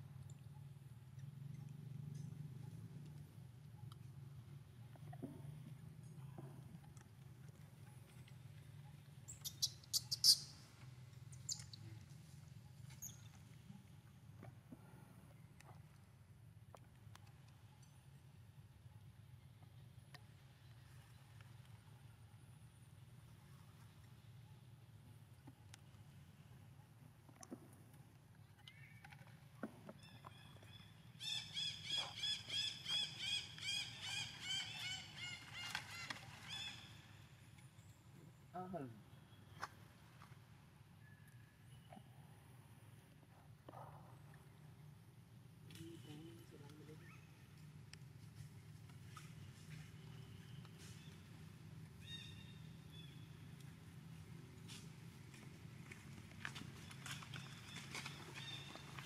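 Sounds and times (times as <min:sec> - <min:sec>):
faint low hum: 0:00.0 - 0:31.5
baby monkey shrill squeaks: 0:09.4 - 0:10.5.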